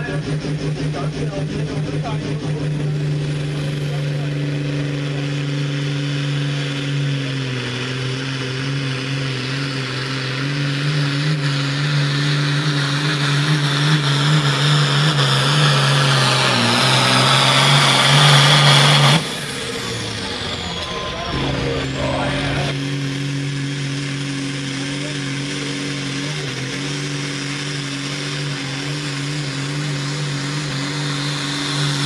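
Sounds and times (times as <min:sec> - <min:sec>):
tractor diesel engine at full throttle: 0:00.0 - 0:32.0.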